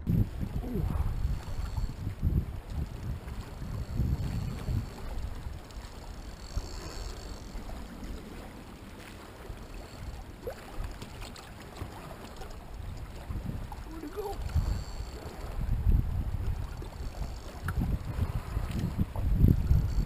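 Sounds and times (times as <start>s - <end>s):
wind rumble: 0.0s - 11.0s, 12.6s - 20.0s
water around a boat: 0.0s - 20.0s
faint clicks: 1.2s - 8.3s, 9.0s - 15.6s, 16.4s - 17.8s.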